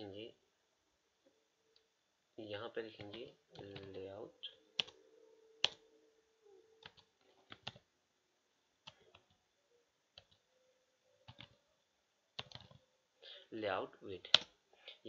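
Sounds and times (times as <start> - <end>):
faint steady hum: 0.0 - 15.0
keyboard keys clicking: 3.0 - 4.0, 4.8 - 5.0, 5.6 - 5.8, 6.8 - 7.8, 11.2 - 11.6, 12.4 - 12.8.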